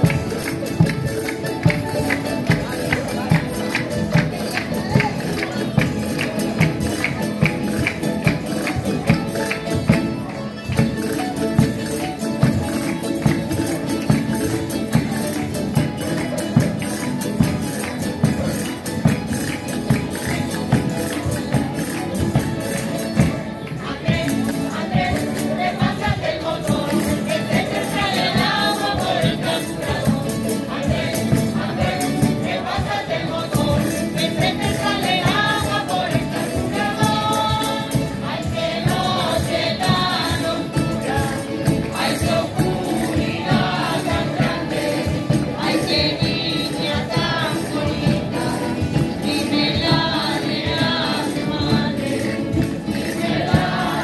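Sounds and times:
strummed guitars: 0.0 - 54.0
group voices singing: 23.4 - 54.0.

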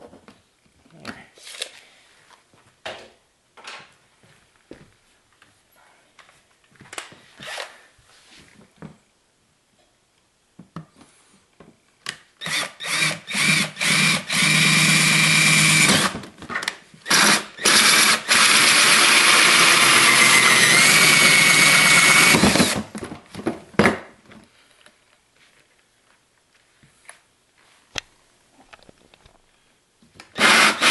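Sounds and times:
electric drill cutting plastic: 12.4 - 16.2, 17.1 - 22.8, 30.4 - 30.9.

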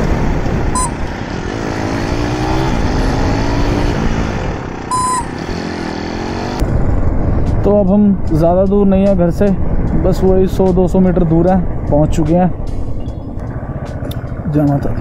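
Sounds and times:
motorcycle engine rumbling: 0.0 - 15.0
short high beeps: 0.7 - 1.1, 4.9 - 5.5.

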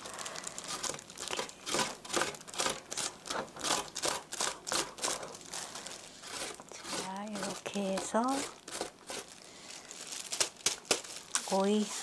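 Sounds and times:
cucumber rasping on a box grater: 0.6 - 9.4.

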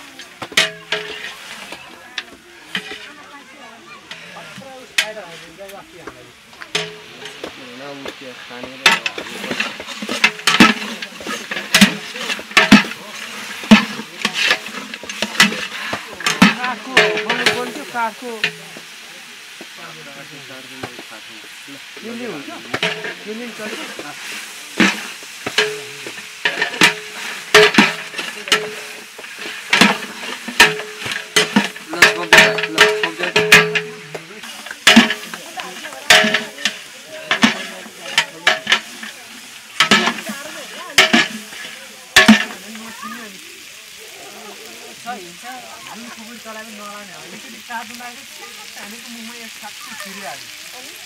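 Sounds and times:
metal ladle scraping metal pot: 0.1 - 3.2, 8.8 - 18.8, 21.9 - 42.9.

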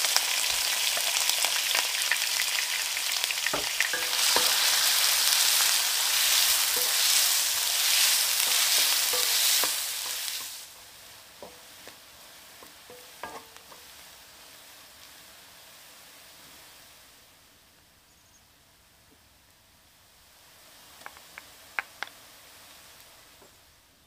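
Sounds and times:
onion sizzling in hot oil: 0.0 - 17.7, 19.9 - 24.0
wooden spatula stirring: 3.5 - 14.0
spatula knocking against pan: 8.4 - 10.6, 11.4 - 11.7, 12.9 - 13.8.

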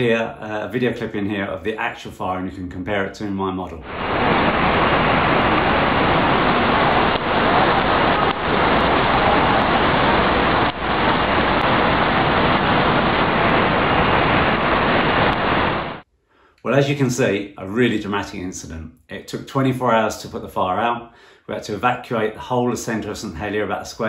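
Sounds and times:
gas fire roaring: 3.8 - 16.0.

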